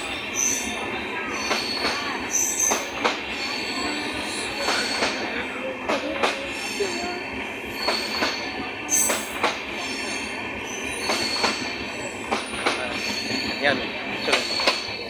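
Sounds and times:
train rolling rumble: 0.0 - 15.0
train wheels clacking over rail joint: 0.0 - 15.0
high wheel squeal: 6.5 - 15.0.

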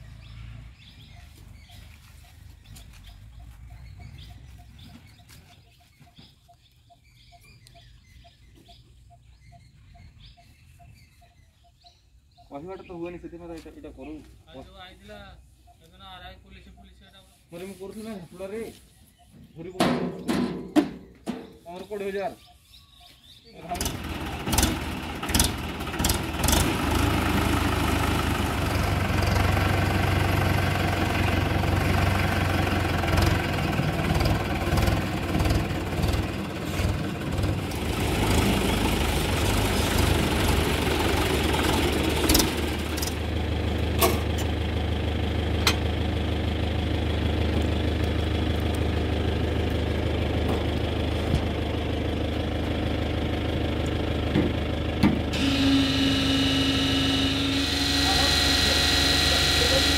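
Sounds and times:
tractor diesel engine idling: 23.6 - 59.9.

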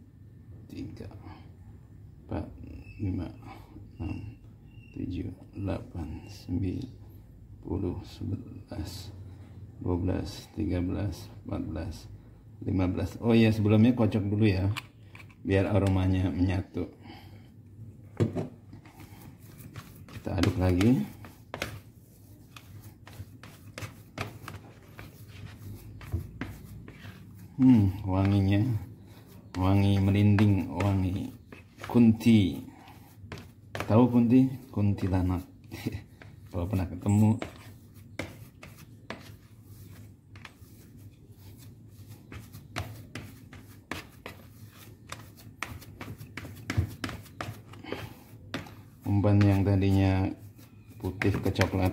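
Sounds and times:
spatula scraping dough in basin: 18.7 - 51.9.

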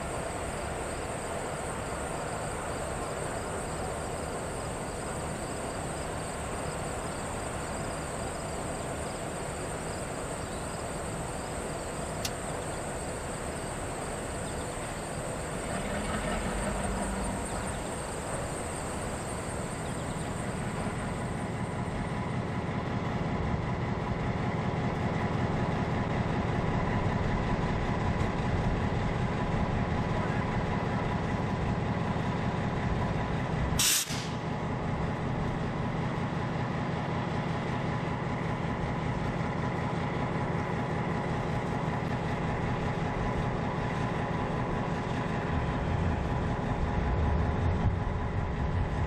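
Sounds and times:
diesel locomotive engine running: 0.0 - 49.0
insects trilling: 0.2 - 22.0.

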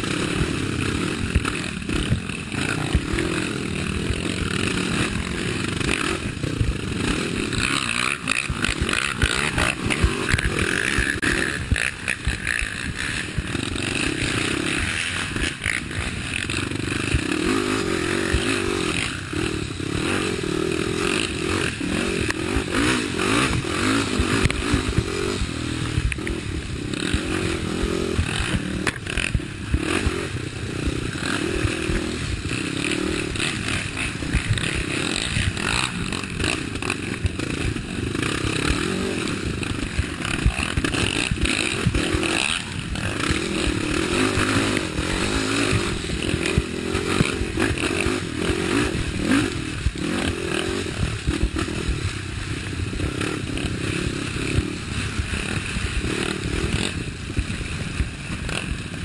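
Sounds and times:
quad engine running hard: 0.0 - 59.0.

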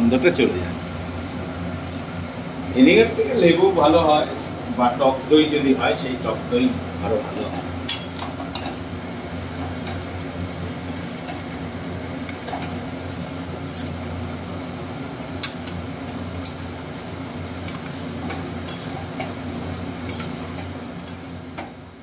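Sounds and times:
steady low hum: 0.0 - 22.0
metal spatula scraping pan: 17.7 - 19.1, 20.1 - 21.4.

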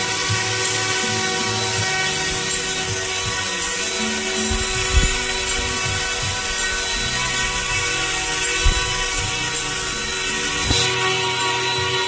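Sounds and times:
rc helicopter rotor whining: 0.0 - 12.0
low thumps: 1.7 - 11.4.

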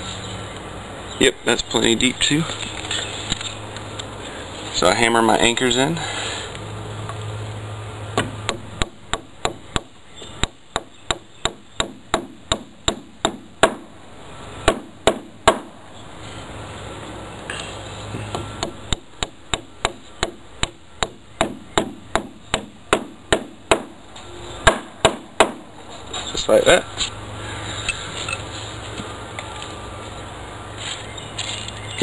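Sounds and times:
hammer tapping anchors into wood: 18.3 - 23.9.

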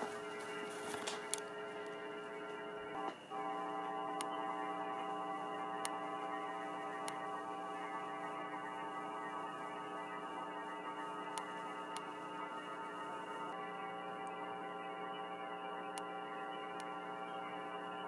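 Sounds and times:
dense droning hum: 0.0 - 18.0
faint sharp clicks: 11.3 - 12.1.

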